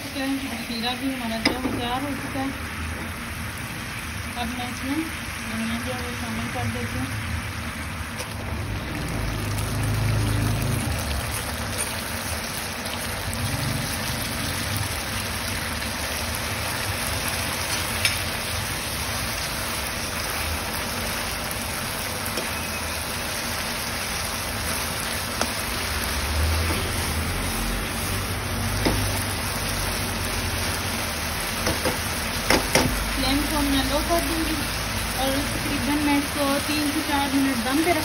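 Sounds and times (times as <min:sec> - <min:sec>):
syrup boiling and sizzling: 0:00.0 - 0:38.0.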